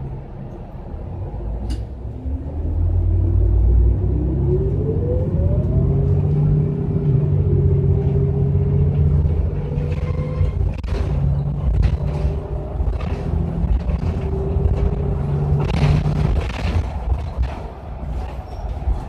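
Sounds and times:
bus engine rumbling: 0.0s - 19.0s
rising whine: 2.1s - 9.0s.

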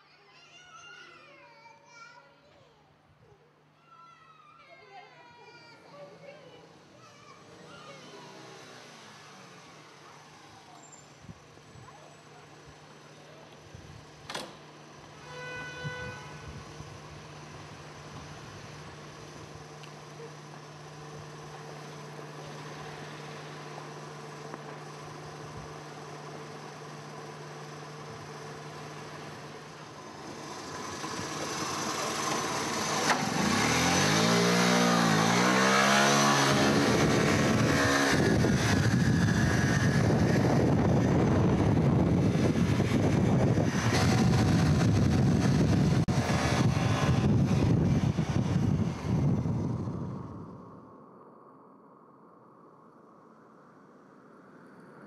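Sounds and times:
vehicle engine revving: 7.5s - 10.7s, 16.3s - 50.6s
loud steady rushing noise: 29.9s - 50.6s.

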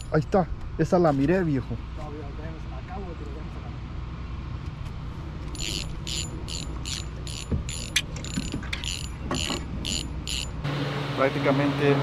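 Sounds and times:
fishing reel gear whirring: 5.4s - 10.7s.

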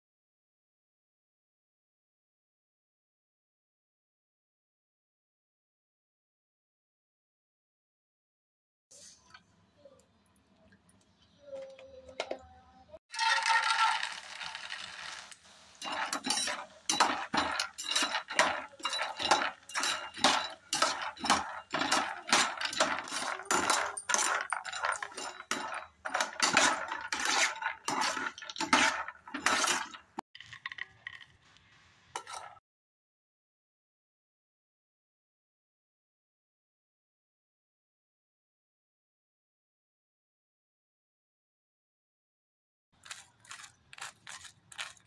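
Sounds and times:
nuts poured into a pan: 13.1s - 31.4s
spatula stirring nuts in a pan: 13.1s - 32.6s.

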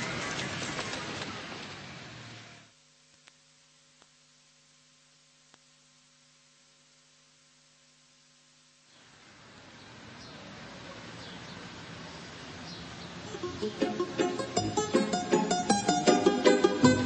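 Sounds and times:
faint steady hum: 1.6s - 10.7s
faint clicks: 3.1s - 3.4s.

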